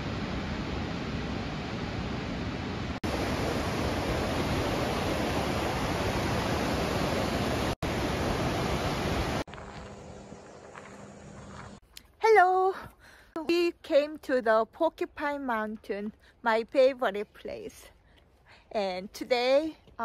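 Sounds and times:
waterfall and rapids rushing: 0:00.0 - 0:09.5.

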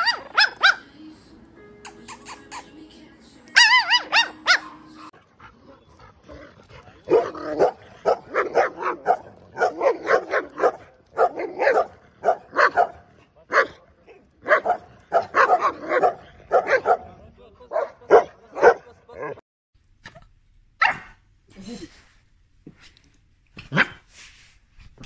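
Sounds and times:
dog barking: 0:00.0 - 0:00.8, 0:03.6 - 0:05.1, 0:07.1 - 0:17.1, 0:17.7 - 0:19.4, 0:20.8 - 0:21.2.

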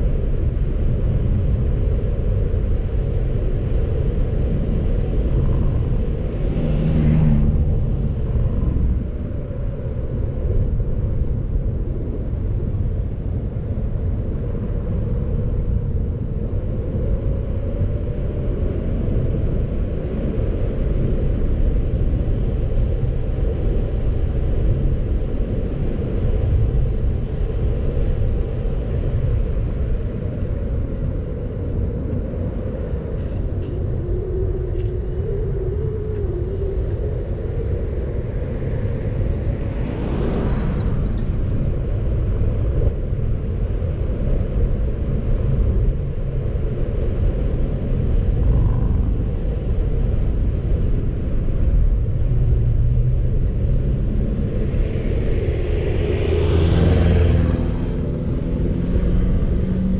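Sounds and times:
tyre and road noise: 0:00.5 - 0:11.3, 0:21.7 - 0:59.9
car engine: 0:04.4 - 0:10.2, 0:37.6 - 0:43.0.

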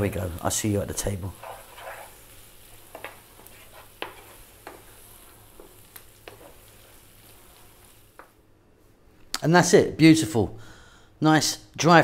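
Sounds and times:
wooden spatula stirring food: 0:00.0 - 0:08.4
faint sizzle from pan: 0:00.0 - 0:09.0.

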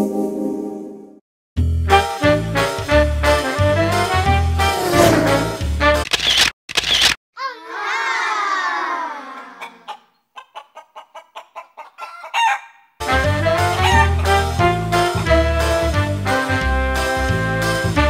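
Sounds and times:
rooster squawk: 0:09.2 - 0:12.9, 0:13.7 - 0:14.4
rooster clucking: 0:09.4 - 0:12.9, 0:13.7 - 0:14.4
rooster crowing: 0:11.9 - 0:12.9, 0:13.8 - 0:14.2.

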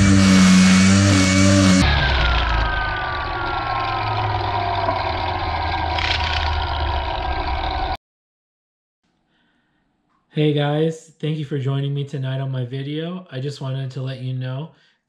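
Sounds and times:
slowed string trimmer drone: 0:00.0 - 0:08.0.

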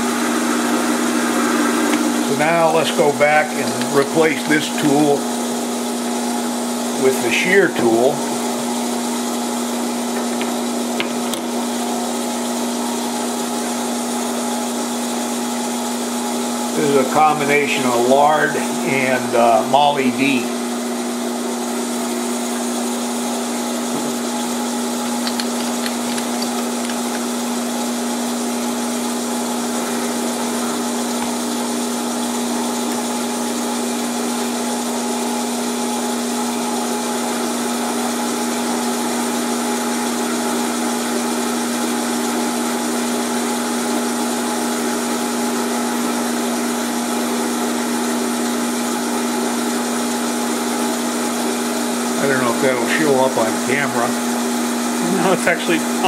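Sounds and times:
lathe humming: 0:00.0 - 0:56.0
tool cutting steel: 0:24.9 - 0:27.5.

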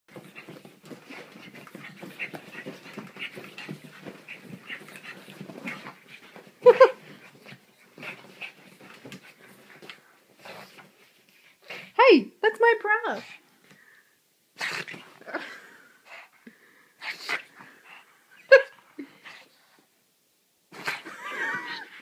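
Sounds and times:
dog scuffling on bed: 0:00.1 - 0:11.3.

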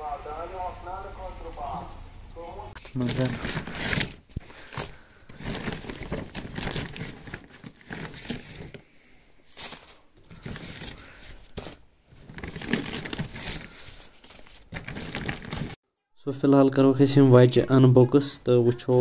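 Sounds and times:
corn husks rustling and tearing: 0:02.8 - 0:08.9, 0:09.5 - 0:15.8.

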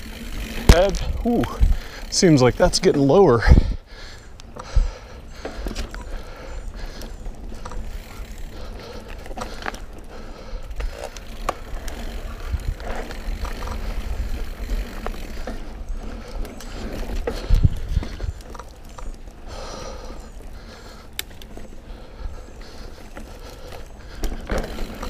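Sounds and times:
bike jolt: 0:00.0 - 0:03.8, 0:22.7 - 0:25.0
bike clicking and rattling: 0:00.0 - 0:25.0
bike tyres rumbling on dirt: 0:00.0 - 0:25.0.

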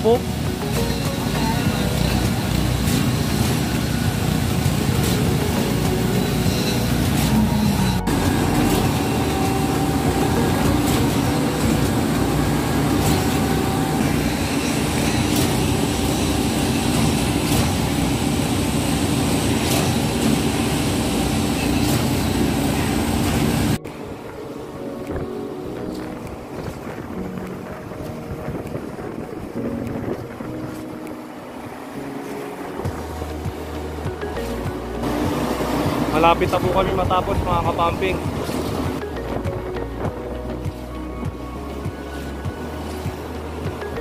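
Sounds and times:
concrete pump diesel engine: 0:00.0 - 0:23.8, 0:34.4 - 0:39.0.

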